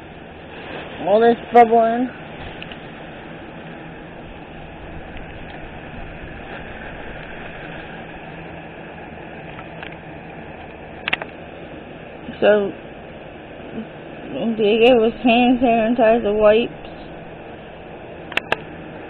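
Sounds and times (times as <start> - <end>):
faint low hum: 0.0 - 19.0
sharp click: 11.0 - 11.4, 18.3 - 18.7.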